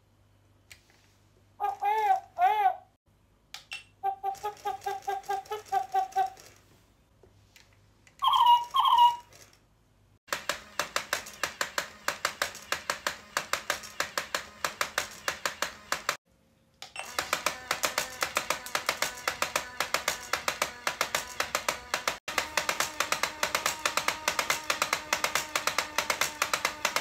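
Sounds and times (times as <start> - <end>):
toy owl hoots: 1.6 - 2.9, 4.0 - 6.5, 8.2 - 9.3
electronic owl chirps: 8.2 - 9.3
mechanism clicking rapidly: 10.3 - 16.2, 16.9 - 27.0.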